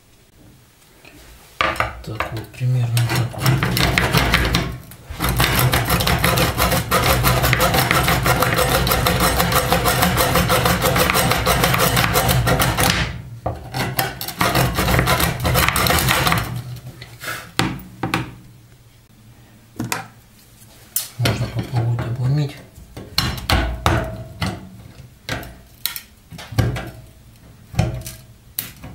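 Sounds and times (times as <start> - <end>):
hacksaw sawing through bolt: 2.9 - 16.8.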